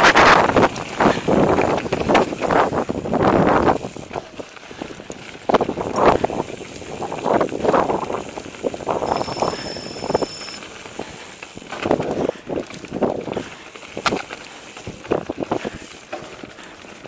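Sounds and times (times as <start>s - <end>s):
bike rattling and clattering: 0.0s - 17.0s
bike tyres over stones and roots: 0.0s - 17.0s
short high squeal: 9.1s - 10.6s.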